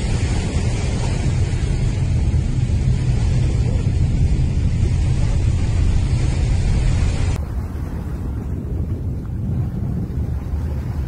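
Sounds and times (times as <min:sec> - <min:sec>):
wind buffeting the microphone: 0:00.0 - 0:11.0.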